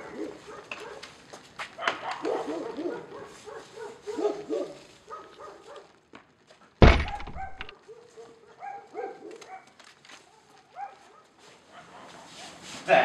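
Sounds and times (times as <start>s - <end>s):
dog barking and whimpering: 1.8s - 5.9s, 7.0s - 12.1s
loud thud: 6.8s - 7.7s.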